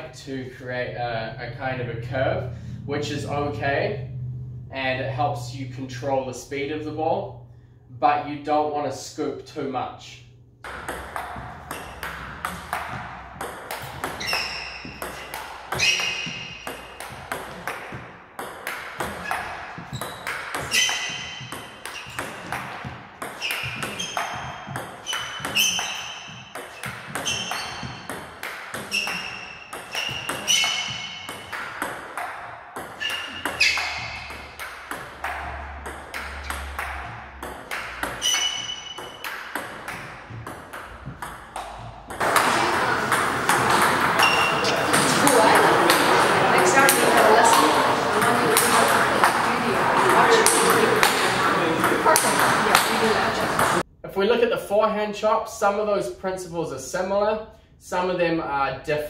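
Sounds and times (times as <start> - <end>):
table tennis ball clicking: 10.6 - 20.7, 40.7 - 53.8
ringing ping: 38.1 - 39.8.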